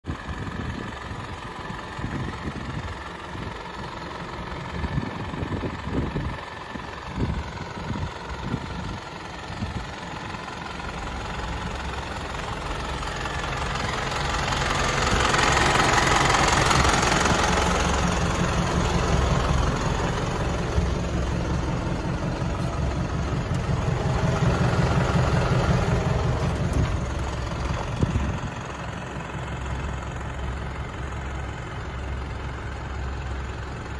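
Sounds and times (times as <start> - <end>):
diesel truck engine idling: 0.0 - 33.9.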